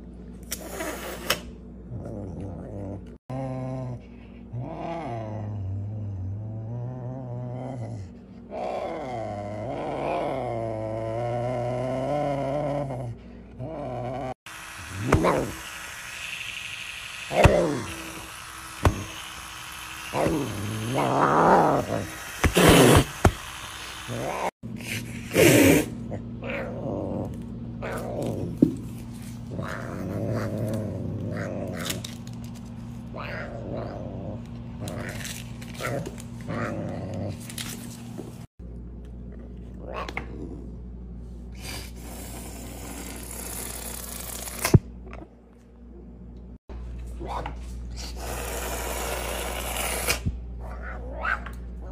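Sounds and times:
serval growling: 1.9s - 14.4s, 20.1s - 23.1s, 24.1s - 24.5s, 25.4s - 28.6s, 29.5s - 32.0s, 33.1s - 35.2s, 35.8s - 37.5s
harsh hissy burst: 14.5s - 24.5s.

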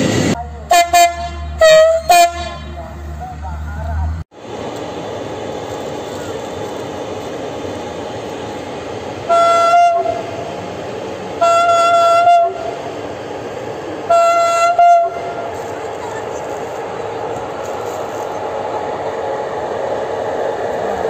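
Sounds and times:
electric locomotive running: 0.0s - 21.0s
train horn blasts: 0.7s - 2.8s, 9.3s - 10.2s, 11.4s - 12.8s, 14.1s - 15.4s.

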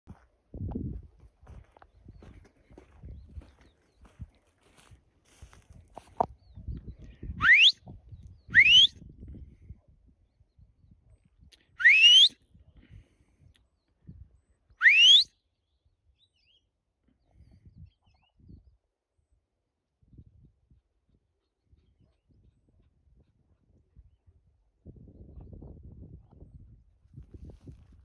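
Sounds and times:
low rumble of wind: 0.1s - 11.8s, 17.1s - 28.0s
person whistling rising whistles: 7.4s - 7.8s, 8.6s - 8.9s, 11.8s - 12.3s, 14.8s - 15.2s.

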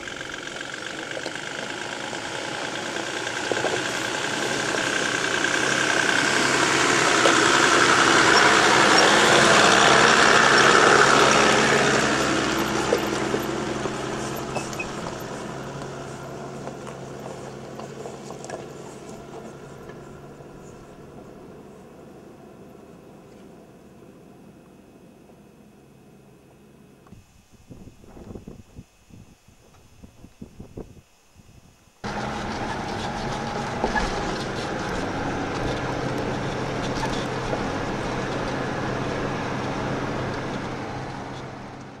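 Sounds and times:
body and loose gear rattling: 0.0s - 20.9s
diesel truck engine at low speed: 0.0s - 29.2s, 29.8s - 42.0s
stones crunching under tyres: 5.6s - 20.9s.

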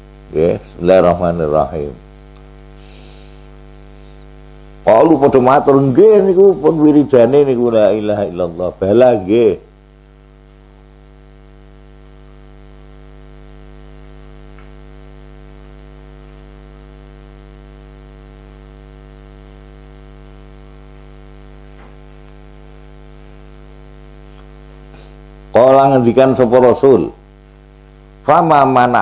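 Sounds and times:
electrical mains hum: 0.0s - 29.0s.

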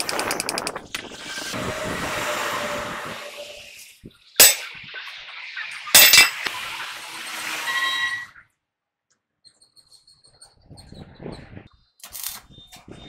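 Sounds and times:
metal clanging on wheel hub: 4.4s - 4.8s, 5.8s - 6.5s.

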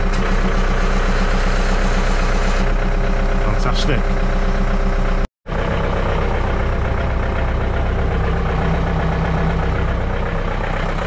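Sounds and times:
tractor diesel engine idling: 0.0s - 11.0s.

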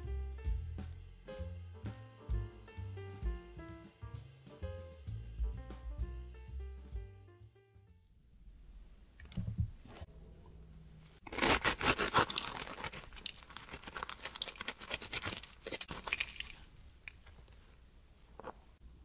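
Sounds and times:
knife crunching through crisp pastry: 11.2s - 17.2s.

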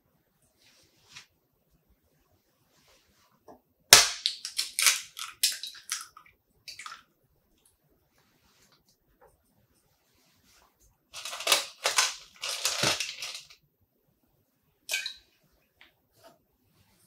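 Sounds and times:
eggshell crackling and crunching: 3.9s - 7.0s, 11.2s - 13.6s.

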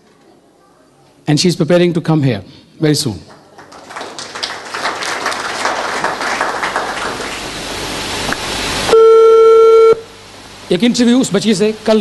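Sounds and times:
audience applauding: 3.3s - 7.8s.

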